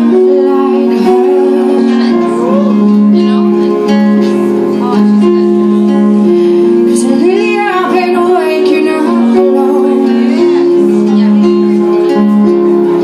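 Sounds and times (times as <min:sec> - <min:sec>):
woman singing: 0:00.0 - 0:03.6, 0:06.8 - 0:12.4
acoustic guitar picking: 0:00.0 - 0:13.0
long held instrument notes: 0:00.0 - 0:13.0.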